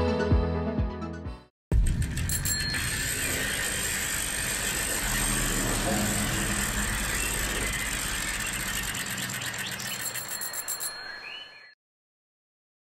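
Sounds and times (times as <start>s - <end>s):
rushing rattling noise: 1.7s - 10.8s
ticks slowing down: 1.8s - 11.0s.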